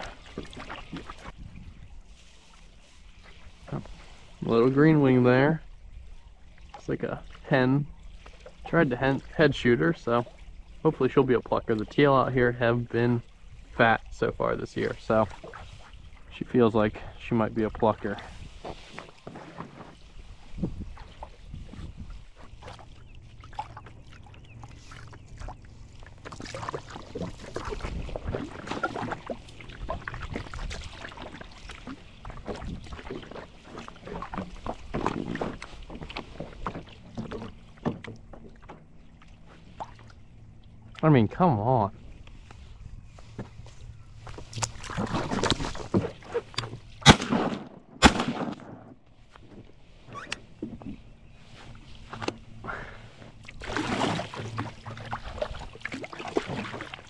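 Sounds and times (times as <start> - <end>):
kayak paddle splashes and drips: 0.0 - 47.2, 49.0 - 57.0
water lapping at hull: 0.0 - 57.0
wind rumble on microphone: 0.8 - 4.5, 13.1 - 19.1, 19.8 - 38.2, 41.9 - 47.0
shotgun shots: 47.0 - 48.9.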